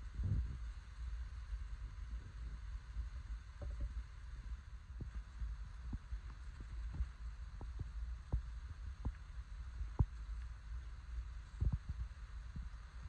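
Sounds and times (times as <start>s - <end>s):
faint hiss: 0.0s - 13.0s
low rumble: 0.0s - 13.0s
soft knocks and thumps: 3.6s - 4.0s.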